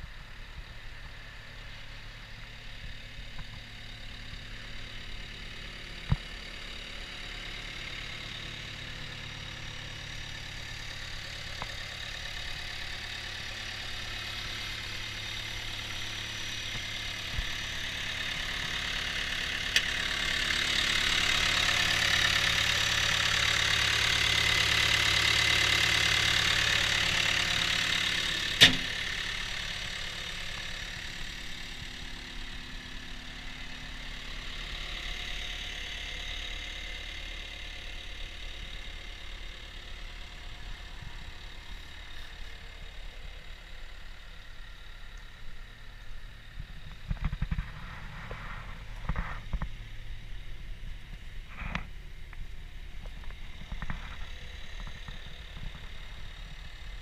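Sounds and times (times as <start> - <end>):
diesel engine idling: 0.0 - 57.0.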